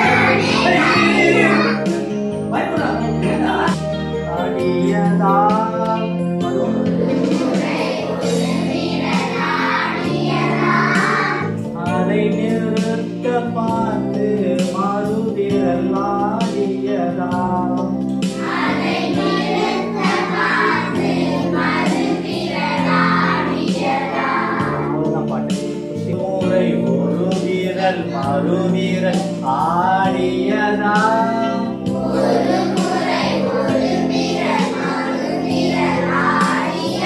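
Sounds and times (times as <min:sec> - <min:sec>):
person singing: 0:00.0 - 0:08.2
instrumental accompaniment: 0:00.0 - 0:37.0.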